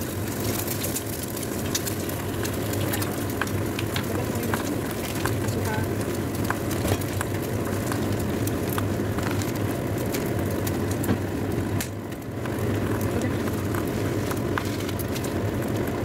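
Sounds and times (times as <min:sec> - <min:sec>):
gas stove burner roaring: 0:00.0 - 0:16.0
liquid simmering: 0:00.0 - 0:16.0
wooden spatula stirring: 0:00.4 - 0:11.1.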